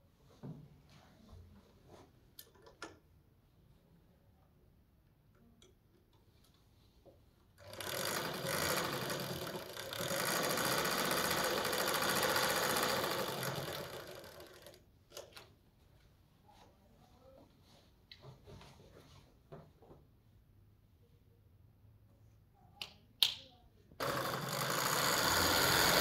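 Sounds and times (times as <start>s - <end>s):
small motor machine running: 7.6s - 14.8s, 24.0s - 26.0s.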